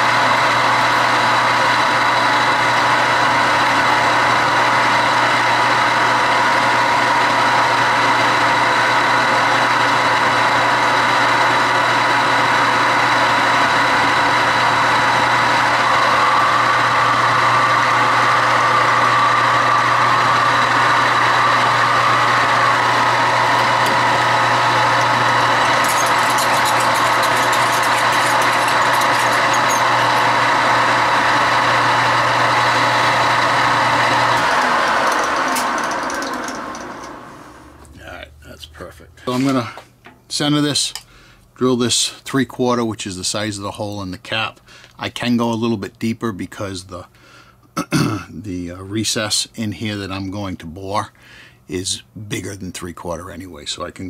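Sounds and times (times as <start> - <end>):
metal lathe motor hum: 0.0 - 37.9.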